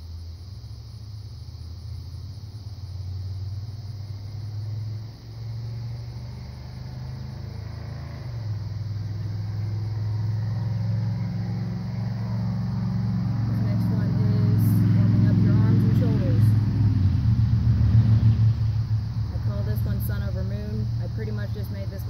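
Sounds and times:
vehicle engine humming: 0.0s - 22.0s.

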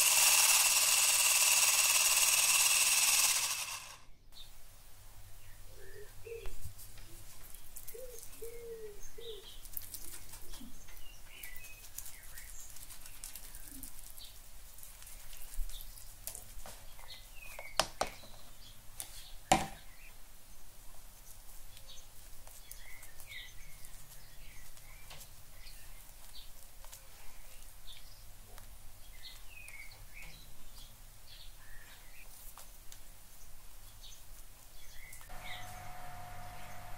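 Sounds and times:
birds chirping: 7.5s - 9.7s, 34.8s - 36.9s.

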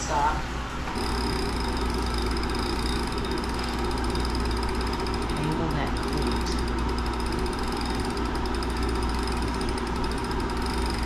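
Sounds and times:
bike trainer flywheel whirring: 0.7s - 11.0s.

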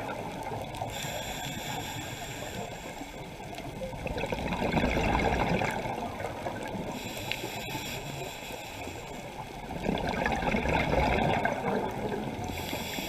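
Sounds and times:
muffled underwater rushing: 0.0s - 13.0s
exhaled breath bubbles: 4.0s - 6.1s, 9.7s - 13.0s.

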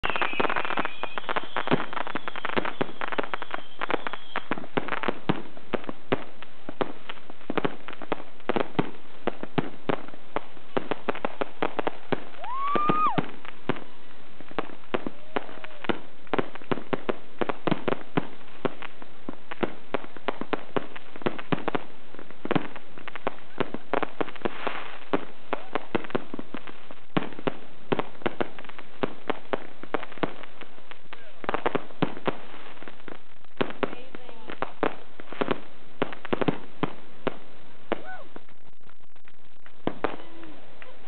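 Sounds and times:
rising firework whistle: 0.0s - 4.9s, 12.1s - 13.9s
fireworks bangs and crackling: 0.0s - 41.0s.

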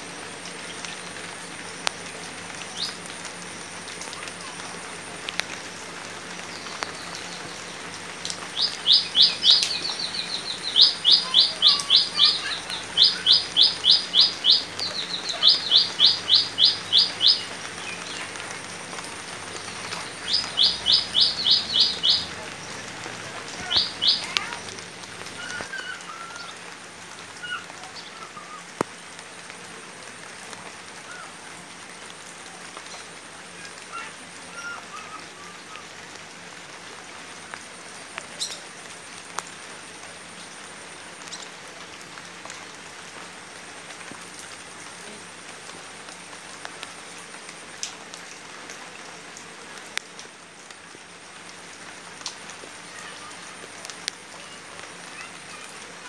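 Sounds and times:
light rain on water and leaves: 0.0s - 56.0s
rain drips: 0.0s - 56.0s
faint bird chirps: 8.5s - 18.3s, 20.0s - 22.4s
bird trilling: 8.6s - 17.6s, 20.0s - 22.4s, 23.6s - 24.4s.

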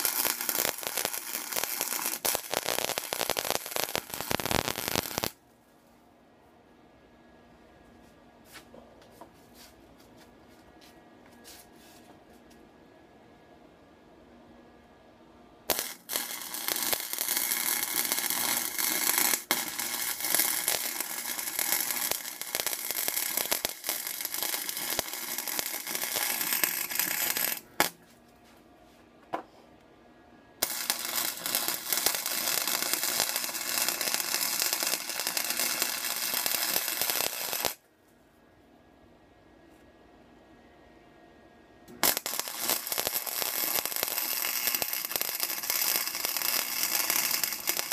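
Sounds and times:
arc welder crackling: 0.0s - 5.4s, 15.7s - 28.0s, 30.6s - 37.8s, 41.9s - 47.9s.

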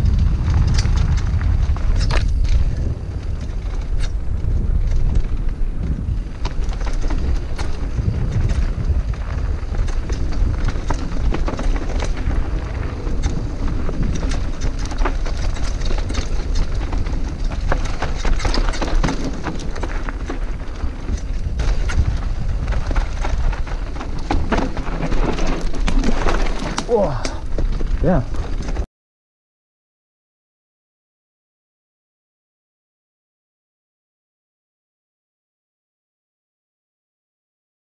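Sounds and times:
wind rushing over microphone: 0.0s - 28.8s
bike tyres rolling over dirt and rocks: 0.0s - 28.9s
bike chain and frame rattling: 0.2s - 28.8s.

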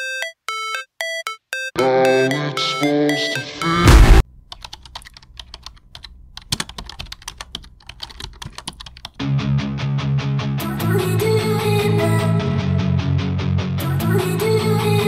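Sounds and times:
loud burst of noise: 3.8s - 4.2s
computer keyboard typing: 4.5s - 9.2s
music: 9.2s - 15.0s.

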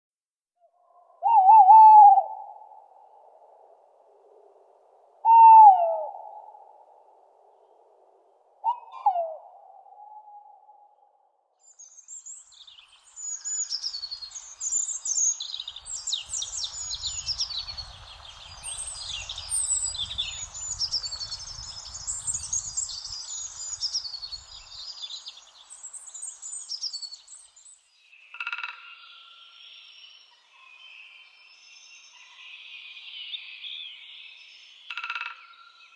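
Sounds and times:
owl hooting: 1.2s - 2.8s, 5.2s - 6.7s, 8.6s - 10.9s
songbirds chirping and trilling: 11.6s - 35.9s.

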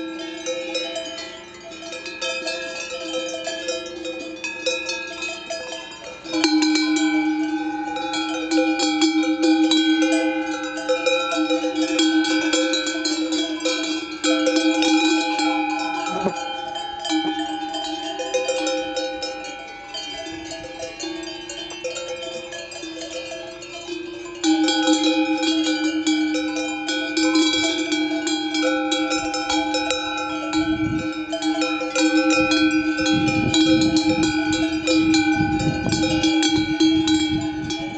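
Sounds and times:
cowbells jangling: 0.0s - 37.9s
nearby cowbell ringing: 0.0s - 37.9s.

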